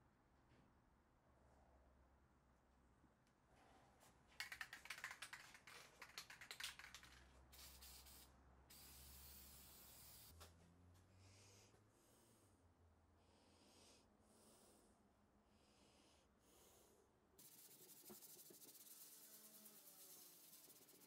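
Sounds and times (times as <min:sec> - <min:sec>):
short hissing strokes: 0:07.6 - 0:10.3, 0:17.4 - 0:21.0
sanding pad scratching on metal: 0:17.4 - 0:21.0.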